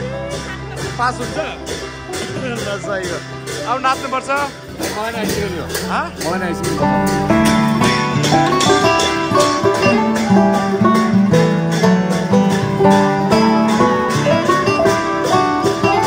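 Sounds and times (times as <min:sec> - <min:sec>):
plucked-string melody: 0:00.0 - 0:16.0
sharp percussive strikes: 0:00.8 - 0:16.0.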